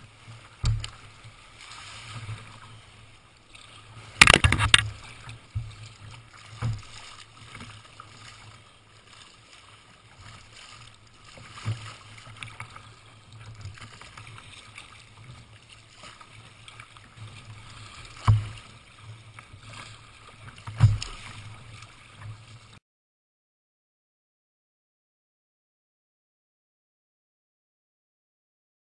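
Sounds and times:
water splashing against kayak hull: 0.0s - 22.8s
waves slapping on bow: 0.0s - 22.8s.

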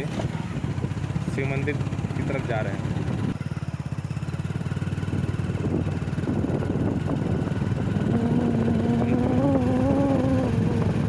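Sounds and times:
vehicle engine low pulsing: 0.0s - 11.0s
steady humming tone: 8.0s - 10.8s.

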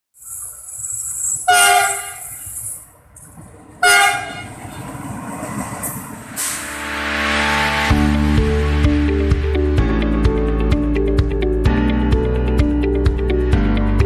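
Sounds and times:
locomotive rumbling past: 0.2s - 10.6s
locomotive horn blasts: 1.4s - 2.5s, 3.8s - 4.6s.

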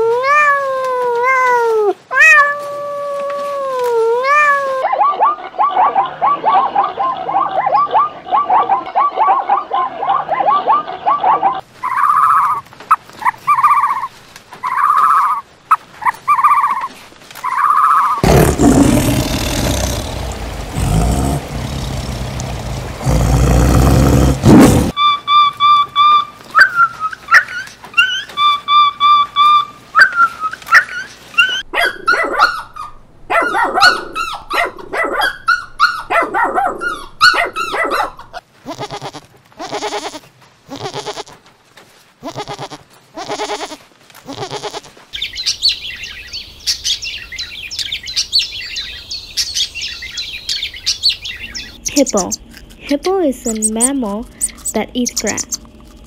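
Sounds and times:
loud animal noise: 17.5s - 25.0s, 53.4s - 56.0s.

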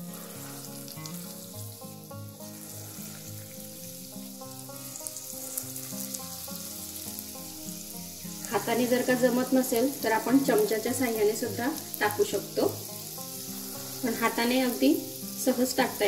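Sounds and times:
oil sizzling while deep-frying: 0.0s - 16.0s
soft background music: 0.0s - 16.0s.

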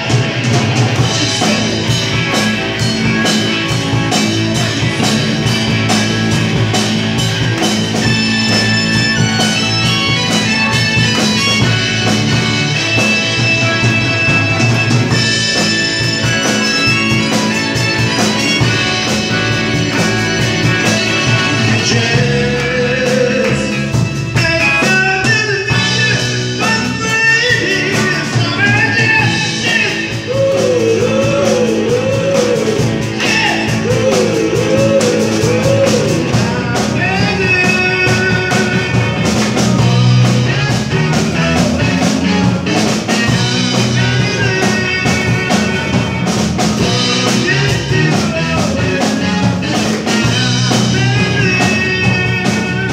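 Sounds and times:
drum kit: 0.0s - 52.9s
electric guitars: 0.0s - 52.9s
keyboard: 0.0s - 52.9s
man singing: 13.2s - 52.9s.

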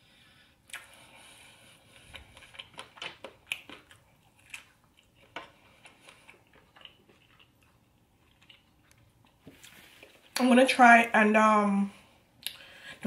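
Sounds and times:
person chewing food: 0.6s - 10.4s.

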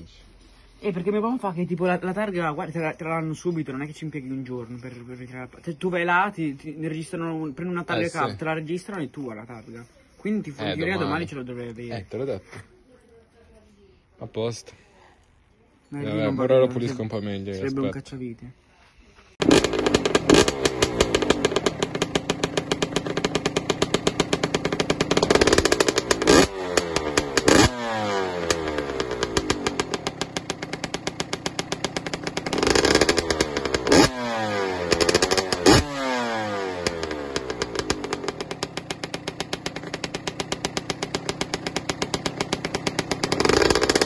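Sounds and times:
motorcycle engine revving: 19.4s - 44.0s.

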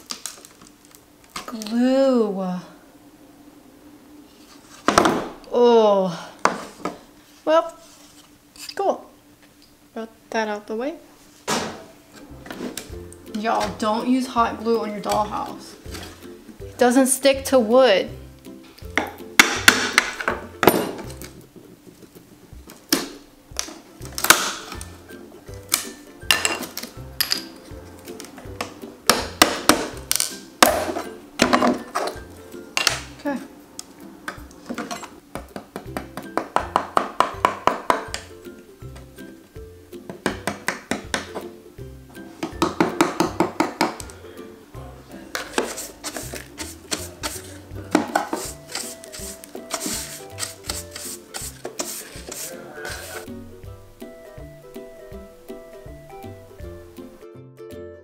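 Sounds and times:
background music with steady beat: 11.6s - 58.0s
hand tool scraping wood: 45.4s - 53.3s.

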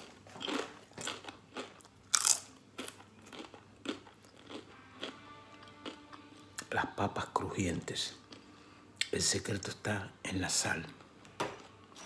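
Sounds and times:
chewing crispy potato chip: 0.0s - 6.2s.

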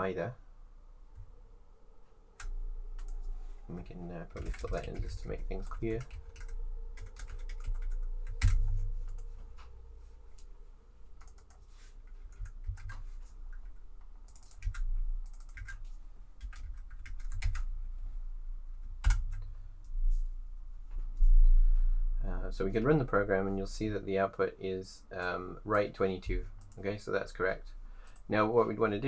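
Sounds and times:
typing on computer keyboard: 4.4s - 9.3s, 11.2s - 11.6s, 12.3s - 15.8s, 16.4s - 17.7s.

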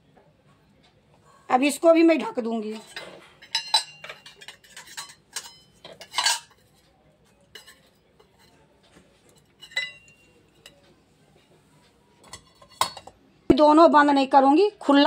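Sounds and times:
metal lids and dishes clinking: 2.6s - 6.8s, 7.5s - 8.7s, 9.3s - 10.8s, 12.2s - 13.2s.

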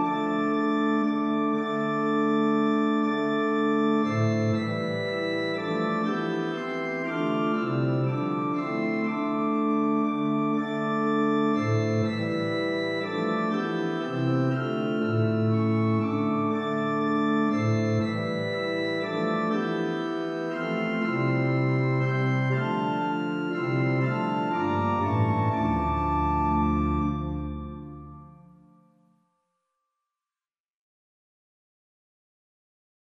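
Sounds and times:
pipe organ playing: 0.0s - 28.6s.

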